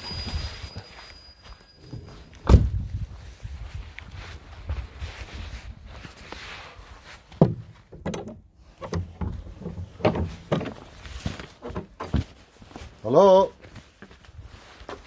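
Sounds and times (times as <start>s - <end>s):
wooden gate squeaking: 0.0s - 2.7s
gate knocks and rattles: 7.4s - 10.9s.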